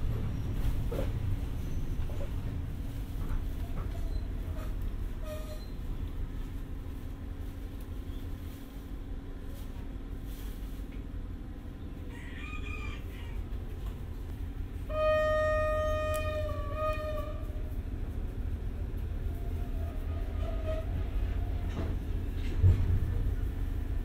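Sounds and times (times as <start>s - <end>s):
rooster crowing: 12.1s - 13.5s
steady low rumble: 13.0s - 20.3s
train horn long note: 14.8s - 17.9s, 19.4s - 21.0s.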